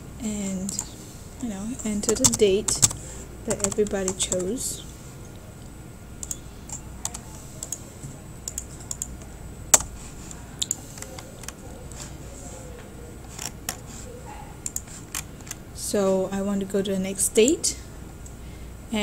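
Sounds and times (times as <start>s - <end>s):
computer keyboard keystrokes: 2.1s - 4.5s, 6.2s - 7.8s, 8.4s - 9.9s, 10.6s - 11.6s, 14.6s - 15.6s.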